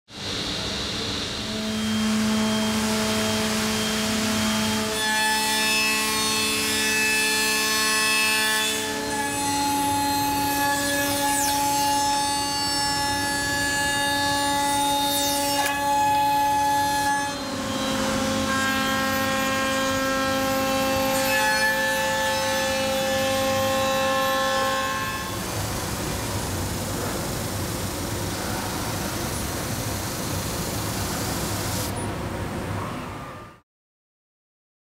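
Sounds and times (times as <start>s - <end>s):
router spindle whine: 0.2s - 5.0s
wood cutting noise: 0.3s - 31.9s.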